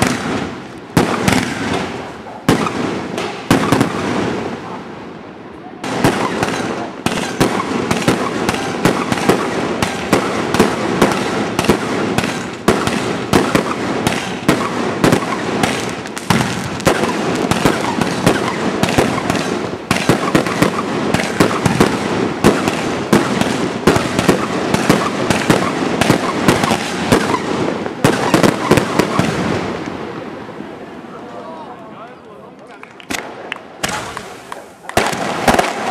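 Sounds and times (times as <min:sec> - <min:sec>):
fireworks shells bursting: 0:06.0 - 0:29.9, 0:33.1 - 0:35.9.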